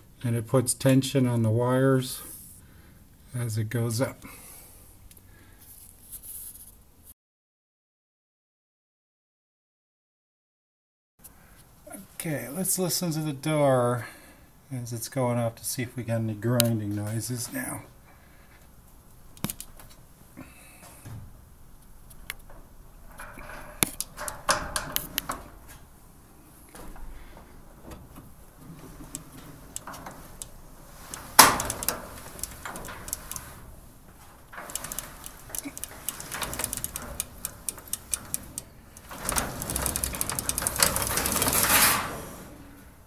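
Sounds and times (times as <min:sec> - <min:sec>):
garage door going up: 0:19.2 - 0:43.0
dense rattle: 0:21.0 - 0:43.0
ball bearings clicking: 0:34.6 - 0:39.1.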